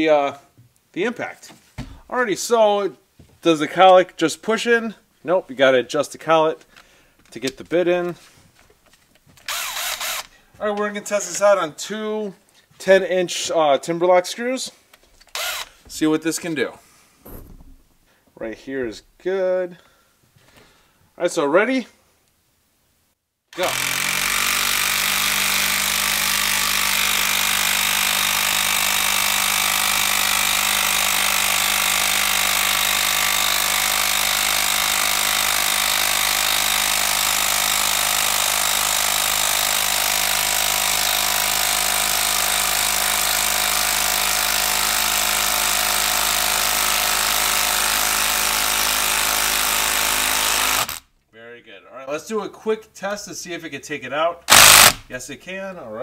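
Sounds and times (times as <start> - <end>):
impact driver hammering: 9.5 - 10.3, 15.3 - 15.9, 23.6 - 51.0, 54.5 - 55.1.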